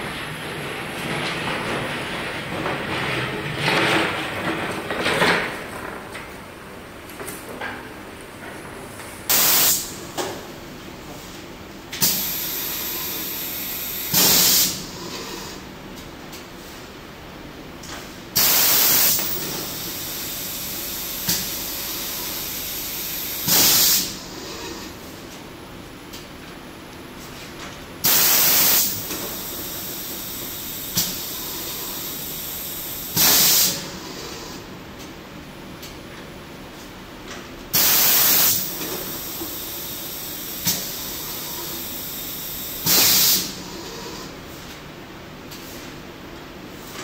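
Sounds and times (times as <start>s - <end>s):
compressed air blast: 9.3s - 10.0s, 12.0s - 14.8s, 18.4s - 20.6s, 21.2s - 24.2s, 28.0s - 29.0s, 33.1s - 33.8s, 37.7s - 38.7s, 42.1s - 43.6s
steady air hiss: 37.8s - 43.6s.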